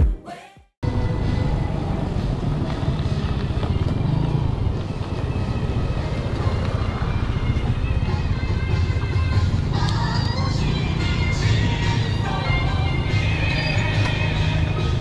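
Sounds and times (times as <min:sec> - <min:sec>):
bicycle tyres on pavement: 0:01.8 - 0:08.3.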